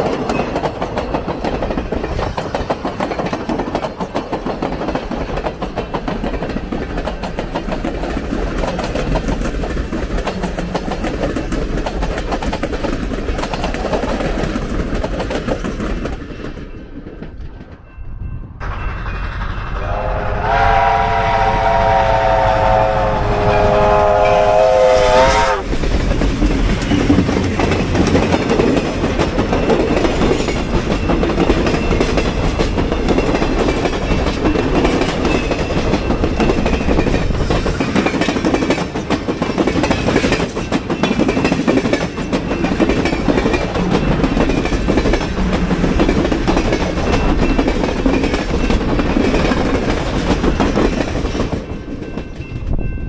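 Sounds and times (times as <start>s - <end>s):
wheels clacking over rail joints: 0.0s - 17.9s, 25.6s - 52.7s
train cars rumbling past: 0.0s - 53.0s
train horn chord blast: 19.8s - 25.6s.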